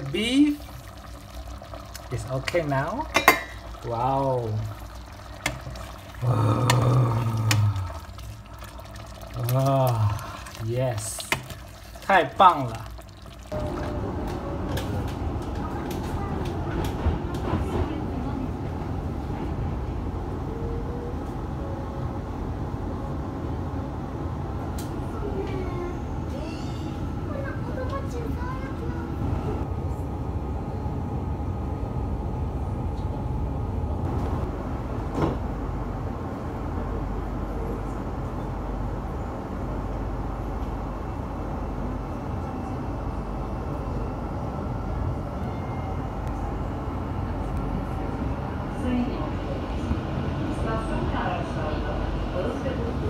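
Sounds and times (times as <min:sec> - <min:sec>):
metro train rumbling: 0:13.6 - 0:53.0
train wheels rumbling on rails: 0:14.0 - 0:20.2.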